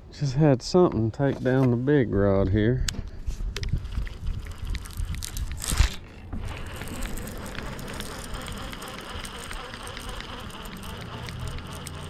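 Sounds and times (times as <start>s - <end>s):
fishing reel rubbing and scraping: 3.6s - 12.0s
faint ticks: 6.7s - 12.0s.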